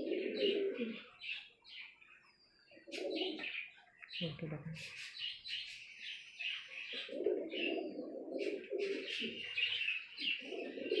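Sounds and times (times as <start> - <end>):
pigeons cooing: 0.0 - 2.1, 2.7 - 3.8, 6.4 - 11.0.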